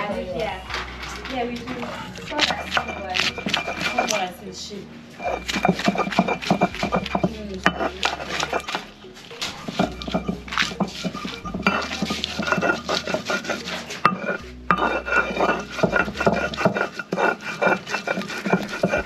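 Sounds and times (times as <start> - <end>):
grinding stone rasping on slab: 2.3 - 4.5, 5.2 - 8.9, 9.5 - 19.0.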